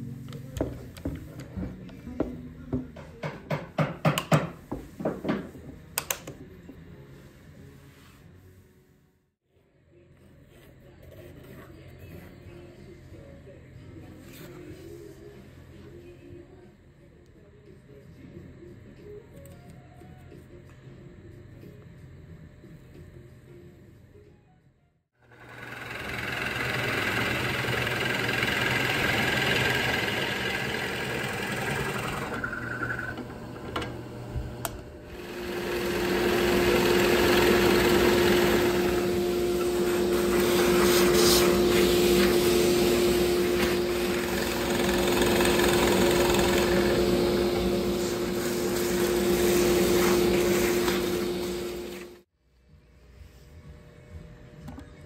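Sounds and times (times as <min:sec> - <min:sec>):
drill press boring wood: 0:25.2 - 0:52.2
shop vacuum running: 0:25.2 - 0:52.3.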